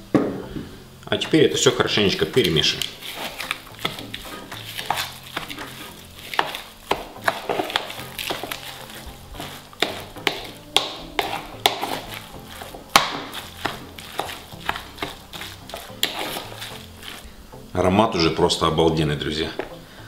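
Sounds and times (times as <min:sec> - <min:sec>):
fork scraping a bowl: 0:02.3 - 0:17.3.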